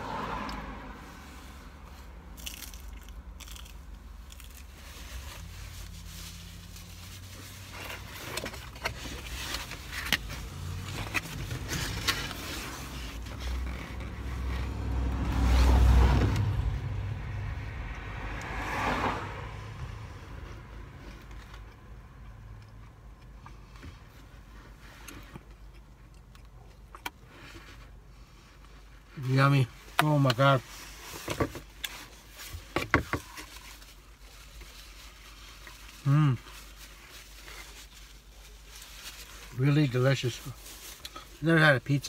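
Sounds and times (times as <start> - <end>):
person chewing pizza: 2.4 - 4.8.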